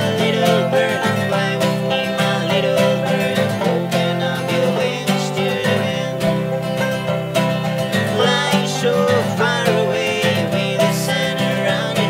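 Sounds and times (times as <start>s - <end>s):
acoustic guitar strumming: 0.0s - 12.0s
banjo picking: 0.0s - 12.0s.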